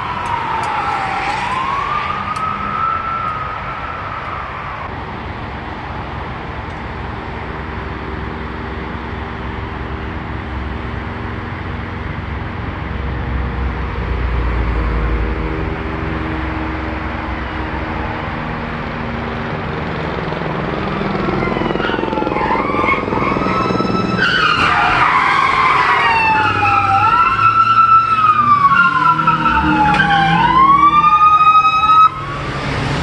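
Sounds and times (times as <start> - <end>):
police sirens wailing: 0.0 - 5.0, 14.6 - 33.0
car engines rumbling: 0.0 - 33.0.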